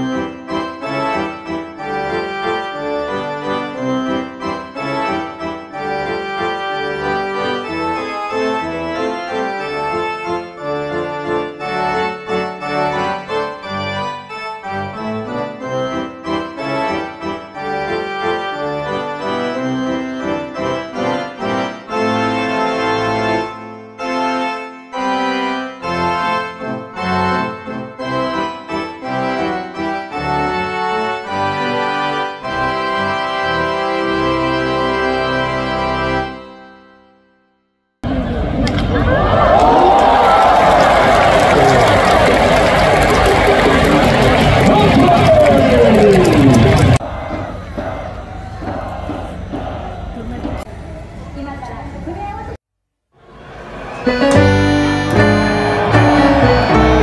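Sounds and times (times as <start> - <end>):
instrumental music with keyboard melody: 0.0 - 37.5, 54.0 - 57.0.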